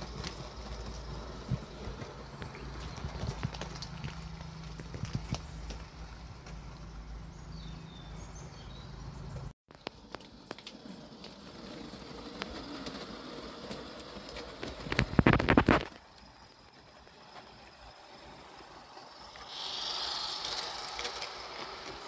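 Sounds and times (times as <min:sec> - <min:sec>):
model train wheels clicking on rails: 0:09.8 - 0:22.0.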